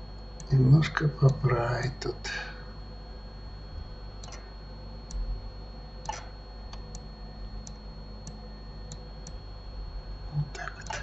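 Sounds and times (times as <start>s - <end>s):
faint electrical hum: 0.0s - 11.0s
computer mouse clicks: 4.2s - 4.4s, 6.0s - 7.0s, 10.7s - 11.0s.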